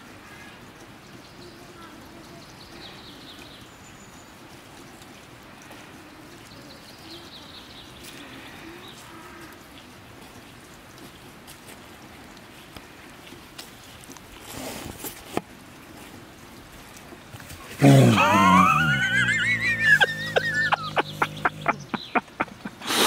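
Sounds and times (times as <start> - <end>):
steady outdoor hiss: 0.0 - 23.0.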